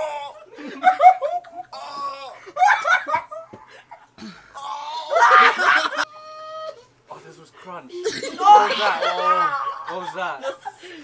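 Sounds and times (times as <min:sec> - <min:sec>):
young men laughing and shrieking: 0:00.0 - 0:07.0, 0:08.0 - 0:11.0
high vocal cry: 0:01.6 - 0:02.7, 0:04.5 - 0:07.0, 0:08.0 - 0:10.1.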